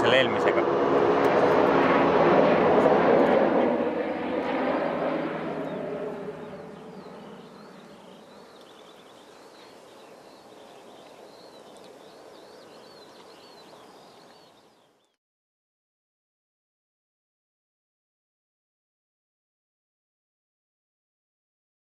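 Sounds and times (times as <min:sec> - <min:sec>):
aircraft engine: 0:00.0 - 0:14.8
small birds chirping: 0:04.6 - 0:15.2.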